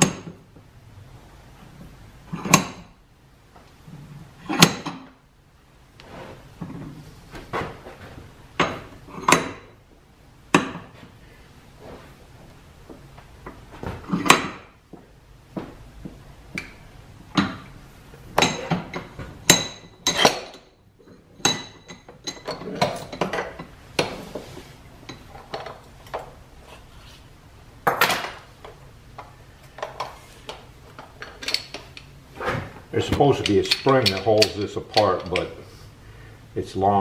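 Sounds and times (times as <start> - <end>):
metal tool clanking on vise: 18.4 - 23.8, 31.0 - 32.1, 33.0 - 35.6
bench vise handle turning: 33.1 - 35.6.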